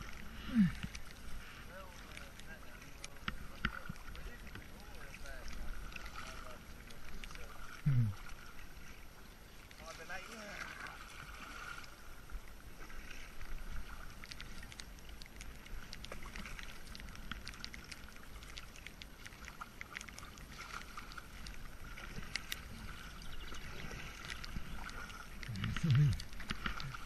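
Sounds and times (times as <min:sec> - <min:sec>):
paddle splashes and drips: 0:00.0 - 0:27.0
hiss of moving water: 0:07.2 - 0:27.0.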